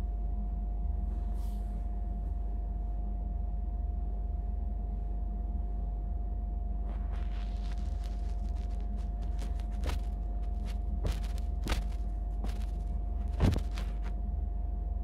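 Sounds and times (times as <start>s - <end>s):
low hum with high tone: 0.0s - 15.0s
clothes rustling: 9.4s - 14.1s.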